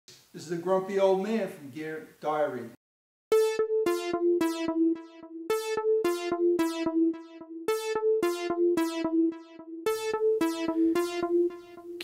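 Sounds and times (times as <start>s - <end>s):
intro music riff: 3.3s - 12.0s.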